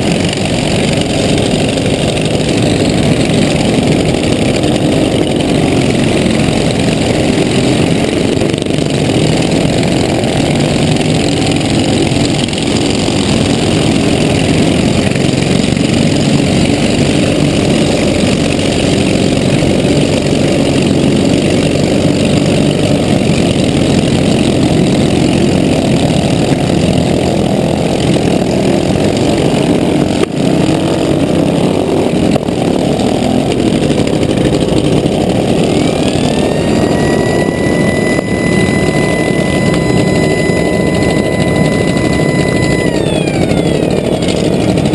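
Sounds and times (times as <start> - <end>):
other mower engines: 0.0 - 44.9
riding mower engine running: 0.0 - 44.9.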